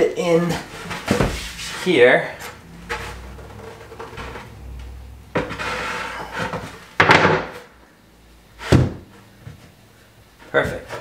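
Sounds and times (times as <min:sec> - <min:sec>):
wooden board scraping: 0:00.5 - 0:07.7.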